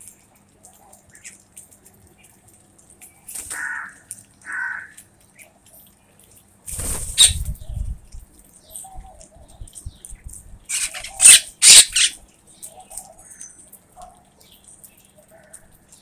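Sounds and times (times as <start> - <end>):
wings flapping: 6.7 - 7.9
bird harsh calls: 7.0 - 7.4, 10.7 - 12.2.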